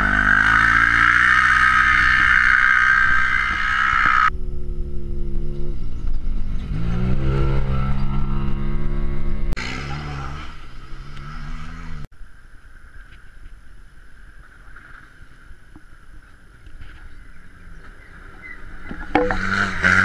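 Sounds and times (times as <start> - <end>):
engines revving at full throttle: 0.0 - 4.4, 5.2 - 12.1, 17.6 - 20.0.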